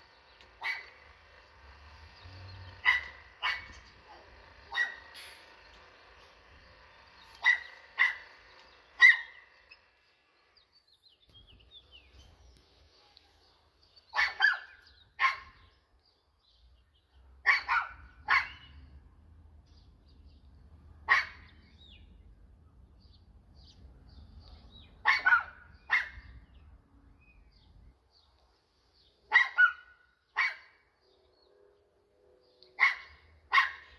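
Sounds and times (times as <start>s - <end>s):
dog barking: 0.6s - 1.0s, 2.8s - 5.1s, 7.4s - 8.3s, 9.0s - 9.4s, 14.1s - 15.7s, 17.4s - 18.7s, 21.0s - 21.5s, 25.0s - 26.3s, 29.3s - 30.8s, 32.8s - 33.9s.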